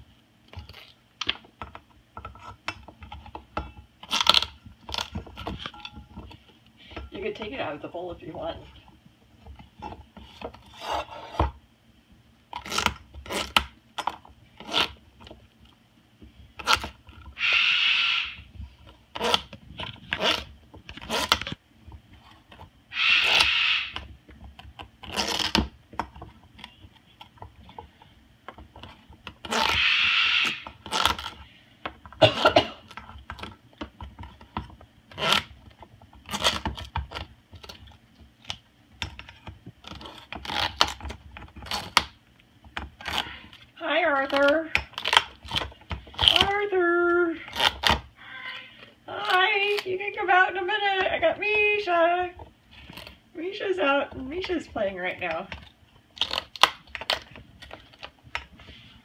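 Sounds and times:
bird beak crunching squash: 16.6 - 18.4, 22.9 - 24.1, 28.9 - 31.4.

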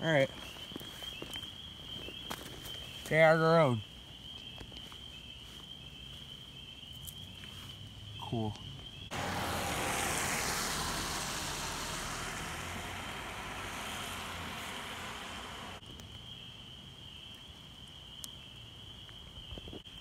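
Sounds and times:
vehicle tyres hissing on wet road: 9.1 - 15.8.

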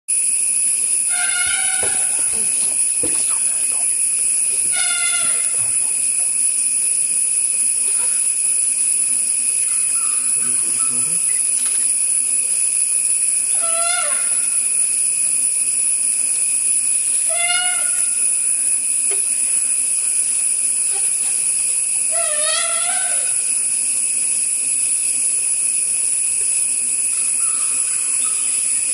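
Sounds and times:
high-pitched hiss: 0.1 - 28.9
wild dogs whistling calls: 9.6 - 12.0.

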